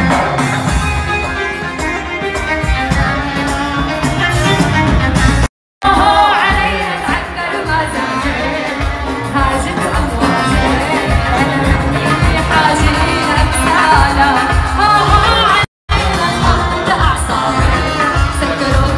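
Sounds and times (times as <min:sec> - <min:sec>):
amplified band music: 0:00.0 - 0:18.9
woman singing into a microphone: 0:05.8 - 0:18.9.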